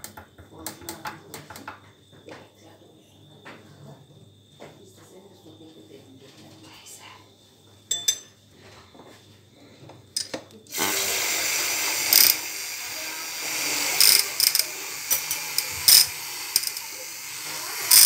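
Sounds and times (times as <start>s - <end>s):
small mixer motor whirring: 10.7s - 18.0s.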